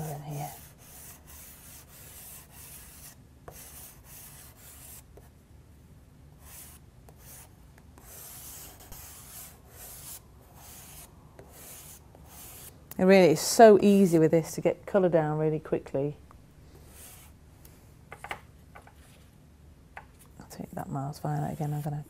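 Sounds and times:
charcoal rubbing on paper: 0:00.0 - 0:05.0, 0:06.4 - 0:12.7.

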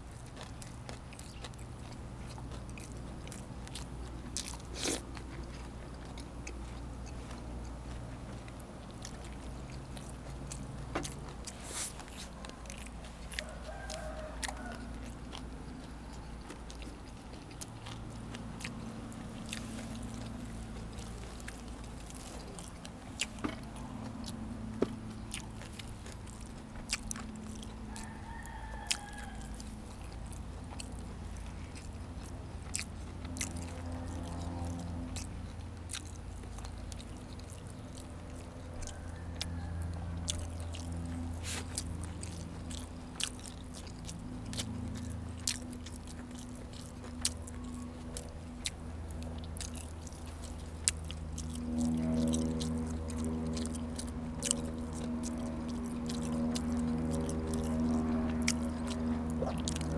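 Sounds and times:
chewing and crunching: 0:00.0 - 0:59.9
low hum: 0:00.0 - 0:59.9
rooster crowing: 0:12.6 - 0:16.3, 0:27.6 - 0:30.1, 0:33.8 - 0:34.9, 0:38.3 - 0:41.4.

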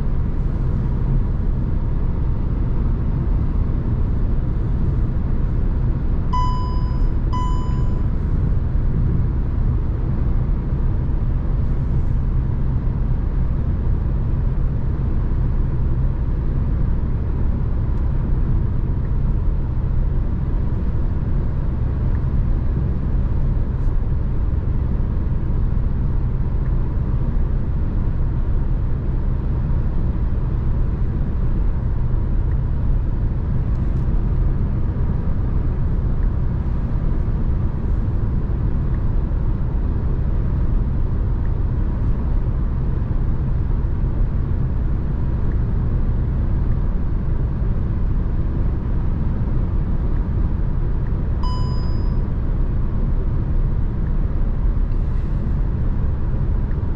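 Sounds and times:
car road and engine rumble: 0:00.0 - 0:56.9
short electronic beep: 0:06.3 - 0:08.1, 0:51.4 - 0:52.2.

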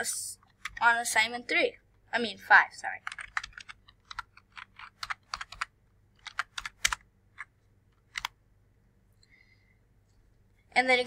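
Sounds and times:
keyboard typing clicks: 0:03.0 - 0:08.4.

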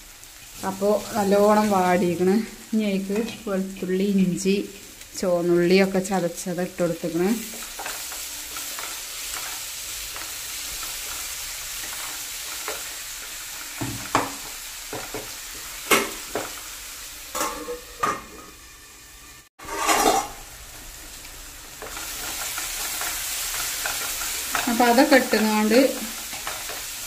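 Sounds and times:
masala sizzling in oil: 0:00.0 - 0:27.0
wooden spatula scraping a pan: 0:19.6 - 0:20.4.

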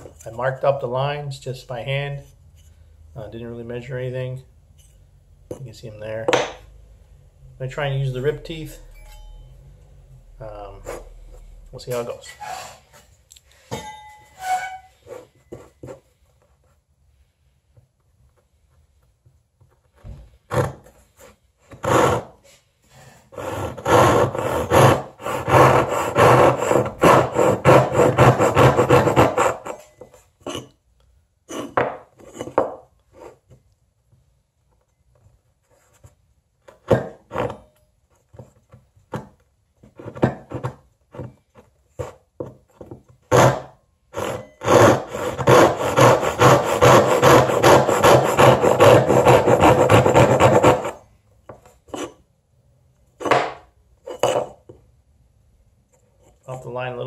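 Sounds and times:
saw rasping through wood: 0:21.8 - 0:22.3, 0:23.3 - 0:29.8, 0:43.3 - 0:51.0.

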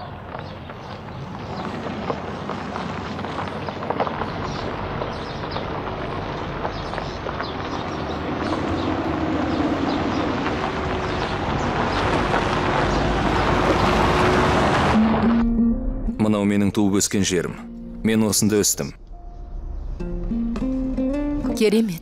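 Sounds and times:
vehicle road and engine noise: 0:00.0 - 0:16.0.

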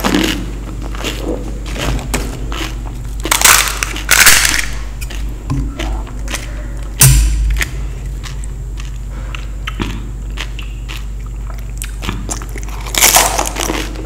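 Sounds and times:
loud crunches of fried snacks: 0:02.5 - 0:05.3, 0:10.3 - 0:14.0
chewing clicks: 0:07.6 - 0:14.0.

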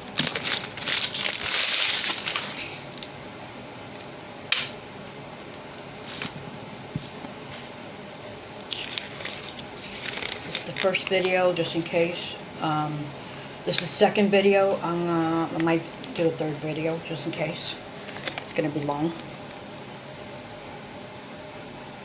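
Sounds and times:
packaging crinkling: 0:00.0 - 0:04.1, 0:08.3 - 0:11.4, 0:18.0 - 0:18.6.

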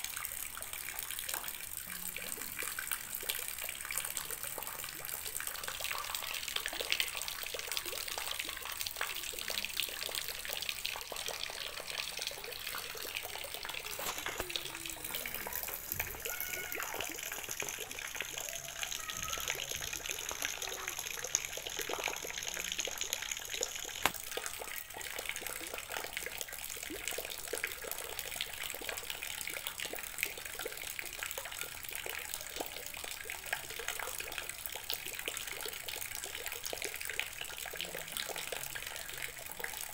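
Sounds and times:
rainwater splashing into a tub: 0:00.0 - 0:39.9.

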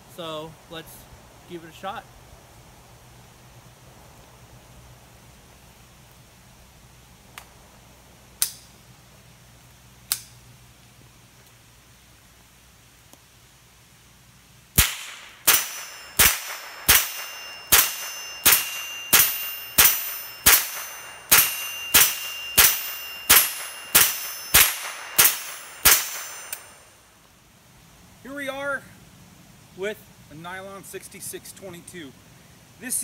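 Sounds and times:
rifle shots: 0:14.8 - 0:26.8
metallic ring: 0:15.4 - 0:27.1.

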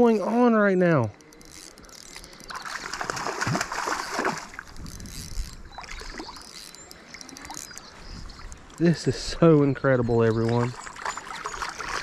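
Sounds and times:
fish splashing in water: 0:02.1 - 0:04.8, 0:10.4 - 0:12.0.

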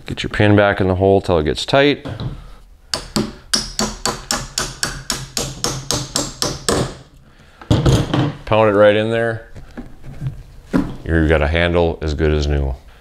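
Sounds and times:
hammer tapping metal pin: 0:02.9 - 0:07.0.

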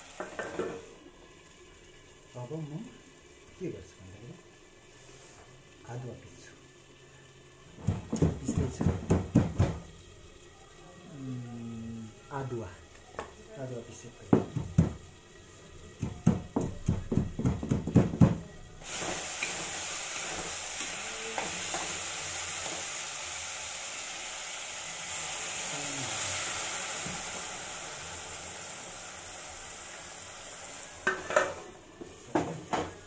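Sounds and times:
food sizzling in wok: 0:00.0 - 0:33.0
pestle pounding in wooden mortar: 0:07.8 - 0:09.8, 0:14.3 - 0:15.0, 0:16.0 - 0:18.4.

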